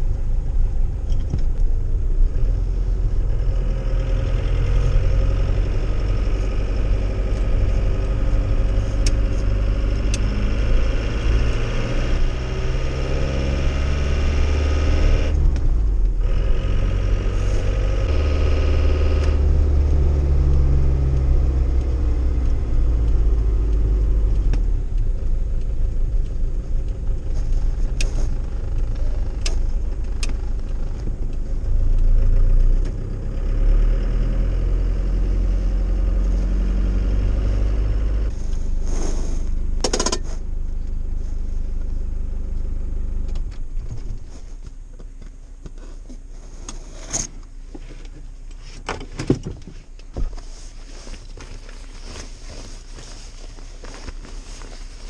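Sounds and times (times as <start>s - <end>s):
diesel engine pulling under load: 2.0s - 40.6s.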